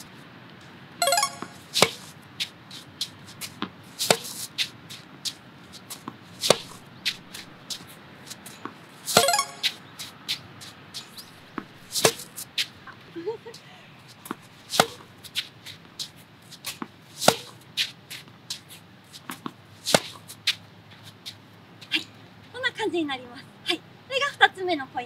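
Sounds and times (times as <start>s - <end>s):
racket hitting tennis ball: 1.1s - 2.1s, 3.5s - 4.7s, 5.9s - 7.6s, 8.7s - 9.8s, 11.2s - 12.4s, 14.7s - 15.1s, 16.7s - 17.6s, 19.2s - 20.3s
tennis balls bouncing on court: 3.6s - 4.4s, 6.0s - 7.6s, 8.6s - 9.8s, 11.4s - 12.3s, 14.2s - 15.1s, 16.7s - 17.6s, 19.3s - 20.3s.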